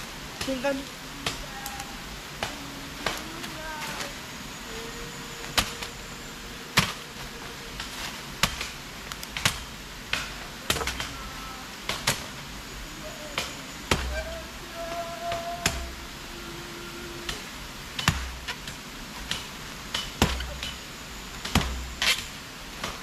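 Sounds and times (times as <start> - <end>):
machete chopping wood: 19.3 - 20.8, 21.4 - 23.0.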